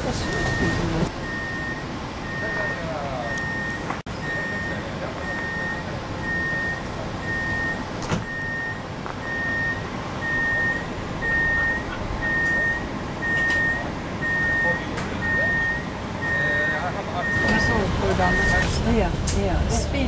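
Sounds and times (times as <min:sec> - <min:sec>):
train humming: 0:00.0 - 0:01.3, 0:17.3 - 0:20.0
train door warning beeps: 0:00.0 - 0:19.0.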